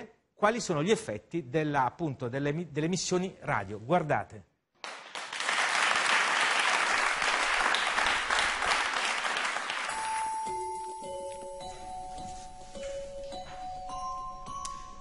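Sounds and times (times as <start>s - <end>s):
audience applauding: 4.8s - 10.4s
soft music with held notes: 9.9s - 15.0s.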